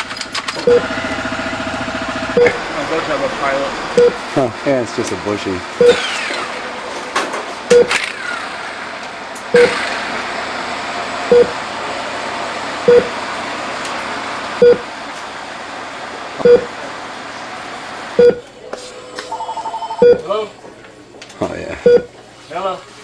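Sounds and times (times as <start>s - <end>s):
heart-rate monitor beeping: 0.6s - 0.9s, 2.4s - 2.6s, 4.0s - 4.2s, 5.8s - 6.0s, 7.7s - 8.0s, 9.5s - 9.8s, 11.3s - 11.6s, 12.9s - 13.1s, 14.6s - 14.8s, 16.4s - 16.7s, 18.2s - 18.4s, 19.3s - 20.3s, 21.8s - 22.1s.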